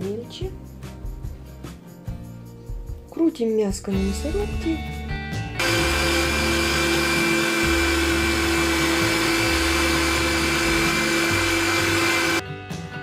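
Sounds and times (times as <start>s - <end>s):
meat grinder motor whine: 5.6s - 12.4s.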